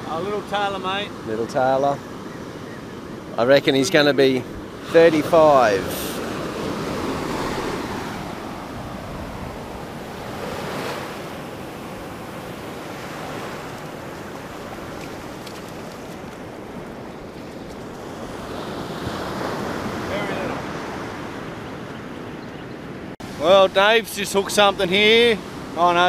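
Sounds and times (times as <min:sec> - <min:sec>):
surf washing up beach: 0:00.0 - 0:22.3, 0:23.0 - 0:26.0
wind buffeting microphone: 0:04.3 - 0:23.1.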